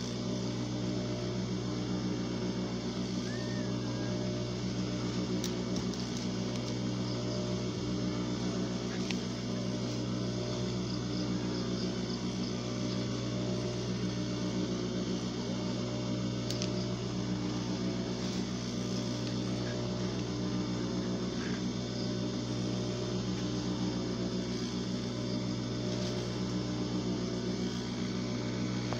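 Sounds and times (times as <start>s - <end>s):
steady electric hum: 0.0s - 28.9s.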